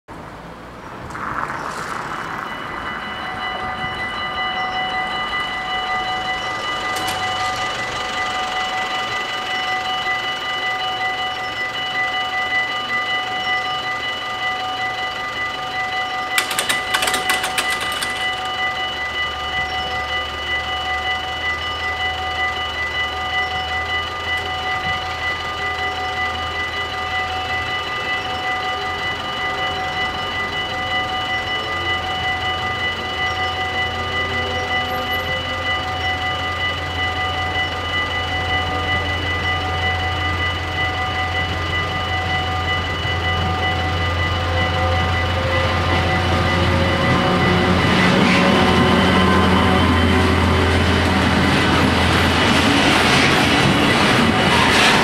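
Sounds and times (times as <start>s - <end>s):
low rumble: 0.6s - 5.4s
level crossing bells ringing: 1.1s - 55.0s.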